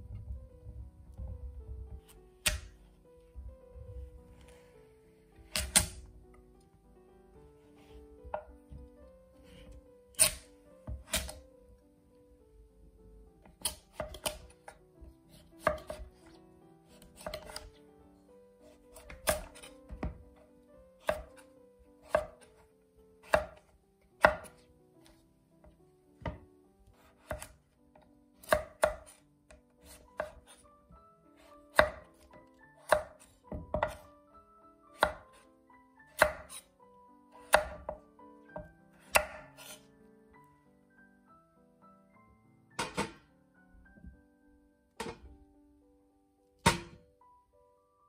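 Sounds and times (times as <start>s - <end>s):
knife striking cutting board: 2.4s - 2.7s, 5.5s - 6.0s, 10.2s - 11.4s, 15.6s - 16.1s, 17.1s - 17.7s, 19.0s - 20.2s, 24.2s - 24.6s, 29.8s - 30.5s, 31.7s - 34.1s, 36.2s - 36.6s, 37.4s - 39.8s, 42.8s - 43.2s, 45.0s - 45.3s, 46.6s - 47.0s.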